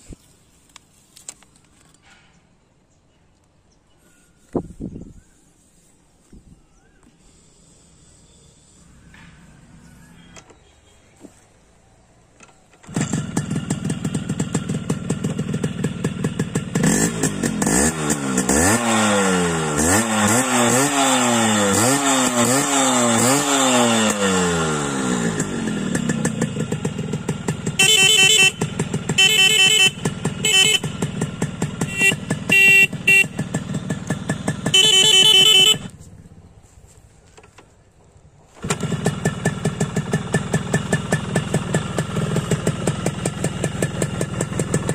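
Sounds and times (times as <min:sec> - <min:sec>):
motorcycle engine revving and idling: 0:05.2 - 0:44.9
motorcycle horn beeps: 0:27.5 - 0:36.0.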